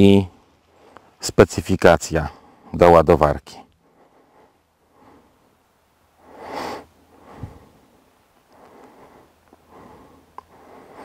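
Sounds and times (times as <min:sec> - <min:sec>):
person breathing: 0:02.3 - 0:02.8, 0:03.8 - 0:11.0.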